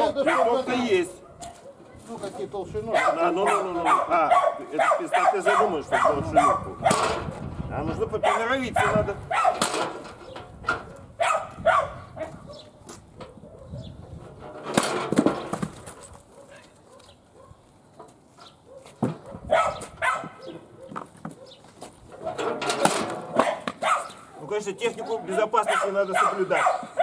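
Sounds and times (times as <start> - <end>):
dog barking: 0.2 - 2.1, 2.9 - 7.0, 8.2 - 9.6, 10.9 - 14.0, 16.3 - 17.6, 18.6 - 21.6, 23.3 - 24.2, 25.0 - 27.0.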